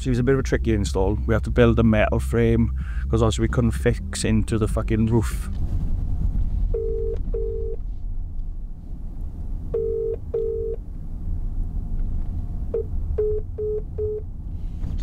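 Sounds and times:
car road rumble: 0.0 - 15.0
short beeps: 6.8 - 7.8, 9.8 - 10.8, 12.8 - 14.3
telephone ringback tone: 6.8 - 7.8, 9.8 - 10.8, 12.8 - 14.2.

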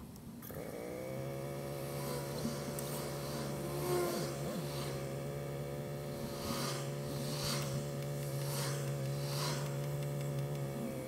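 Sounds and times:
motorcycle engine running: 1.0 - 11.0
hissing whooshes: 1.7 - 10.2.

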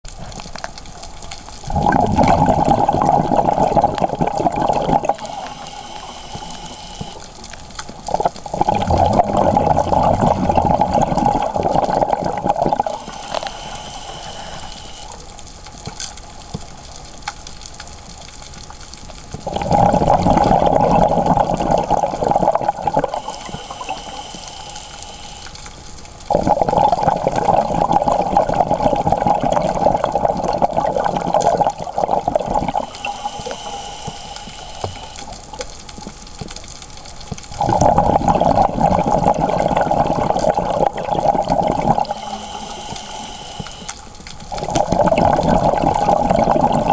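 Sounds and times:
bubbling exhalation underwater: 1.6 - 15.2, 19.4 - 25.4, 26.3 - 35.6, 37.5 - 46.9
hissing regulator inhalation: 1.8 - 7.6, 8.2 - 15.2, 21.0 - 25.6, 31.5 - 35.5, 41.2 - 46.9.

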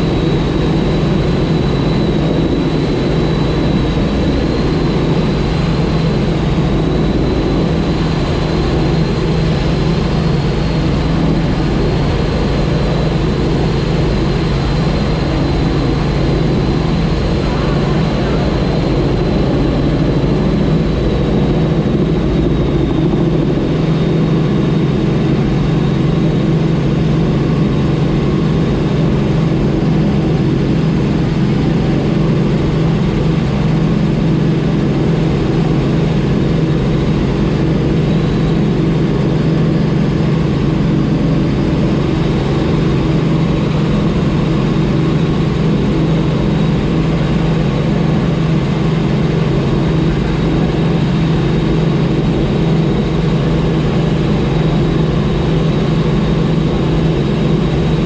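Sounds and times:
helicopter engine and rotors drone: 0.0 - 58.0
faint high whine: 12.8 - 24.8.

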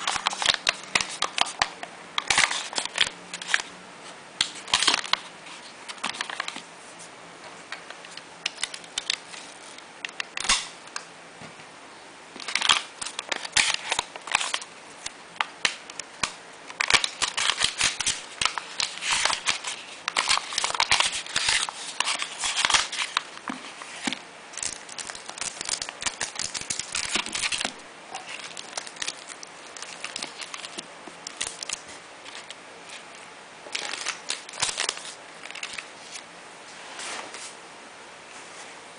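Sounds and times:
packaging bags crinkling: 12.4 - 14.7, 15.9 - 33.1, 33.7 - 36.2.

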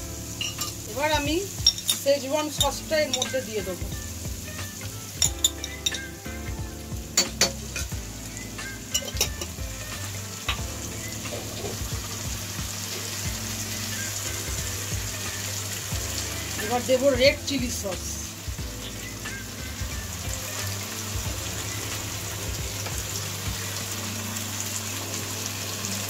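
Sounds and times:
vegetables sizzling in oil: 0.0 - 26.0
metal spoon clinking: 0.4 - 0.8, 1.6 - 3.5, 5.2 - 6.2, 8.9 - 9.5.

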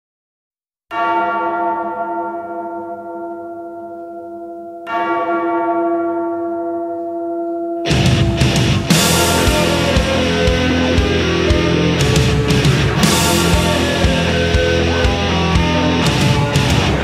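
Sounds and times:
large tolling bell: 0.9 - 17.0
loud band music: 7.9 - 17.0.

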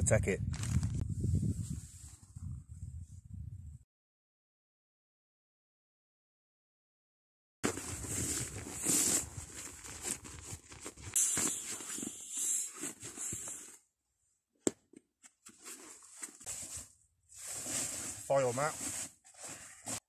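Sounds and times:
tent fabric rustling: 7.6 - 13.8, 15.4 - 20.0.

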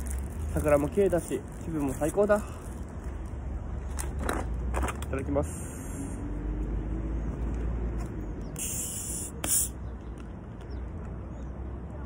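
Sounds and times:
soda bottle gas hissing: 8.4 - 9.9.

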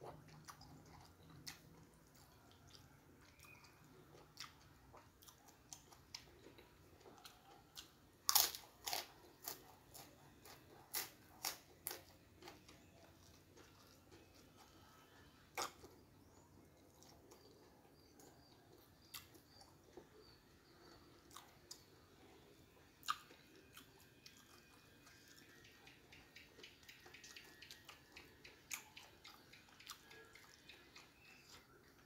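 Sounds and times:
chewing clicks: 0.0 - 14.8, 15.5 - 22.1, 23.0 - 32.0
cracker crunching: 0.0 - 22.1.

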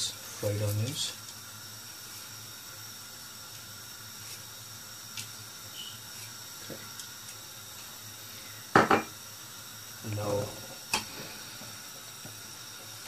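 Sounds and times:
rice boiling in a pan: 0.0 - 13.0.

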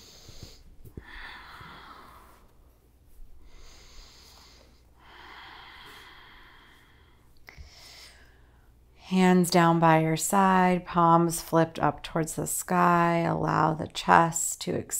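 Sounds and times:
soft human breathing: 0.0 - 9.0.

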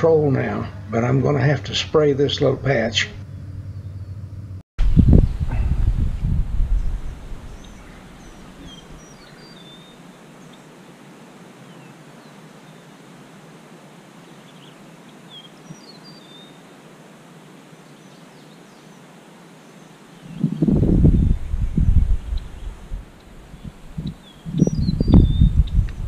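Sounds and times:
low rumble on microphone: 3.0 - 9.1, 20.3 - 26.0
steady soft hiss: 4.9 - 26.0.

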